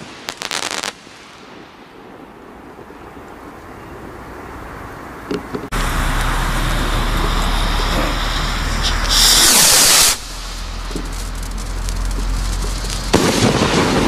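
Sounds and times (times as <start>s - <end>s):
firework rocket hissing: 0.0s - 2.2s, 5.7s - 14.0s
outdoor background noise: 0.0s - 14.0s.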